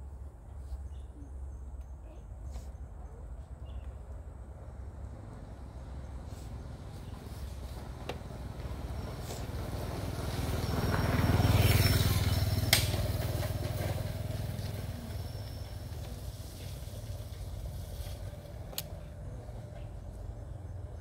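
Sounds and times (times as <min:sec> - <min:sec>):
passing vehicle engine rumble: 0:00.0 - 0:21.0.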